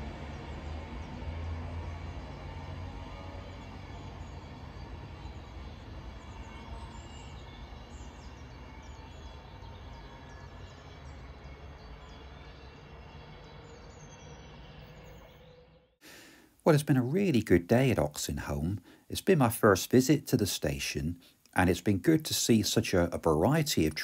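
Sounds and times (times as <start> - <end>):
electric train humming: 0.0 - 15.5
small birds chirping: 0.0 - 24.0.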